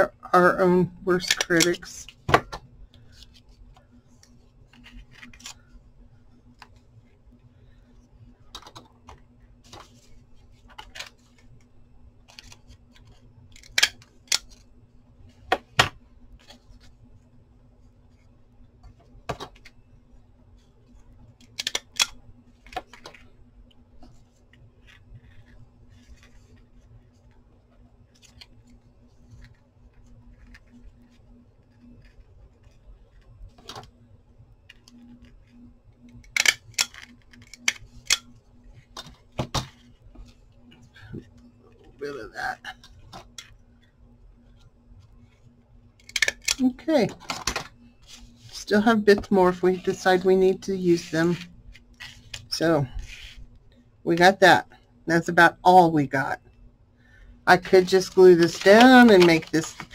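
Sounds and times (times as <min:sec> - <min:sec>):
faint steady hum: 0:00.0 - 0:59.9
paper rustling: 0:57.6 - 0:59.9.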